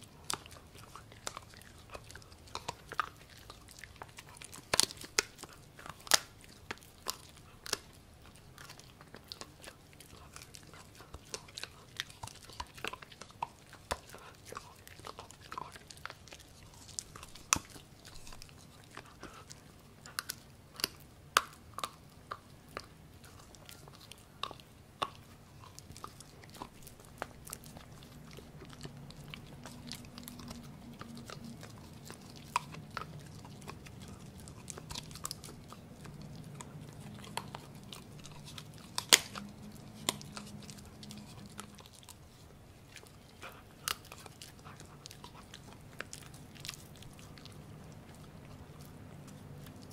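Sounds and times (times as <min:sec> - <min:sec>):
puppy chewing meat: 0:00.0 - 0:49.9.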